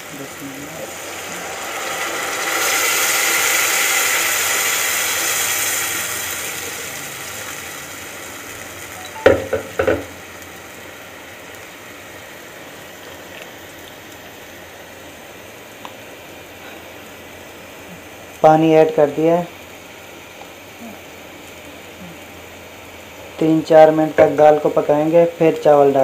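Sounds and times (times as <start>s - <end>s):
water sizzling in hot pan: 0.0s - 26.0s
quick knocks: 9.2s - 10.1s.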